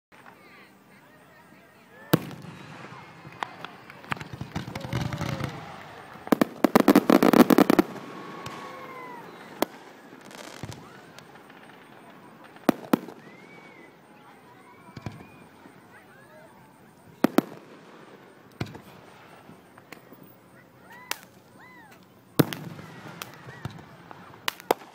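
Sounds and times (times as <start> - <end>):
firework crackling: 0.2 - 24.9
firework bangs: 2.0 - 15.8, 17.1 - 20.2, 22.4 - 24.9.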